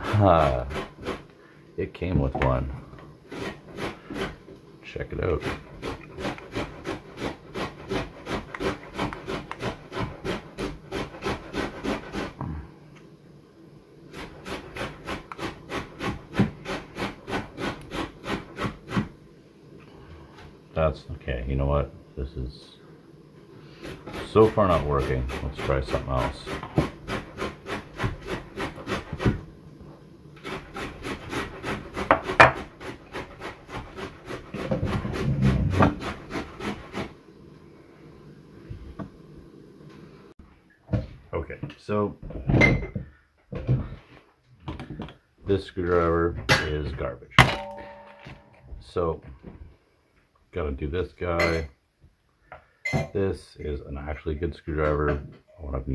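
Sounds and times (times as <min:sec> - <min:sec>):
microphone rubbing on wooden desk: 0:33.8 - 0:37.1.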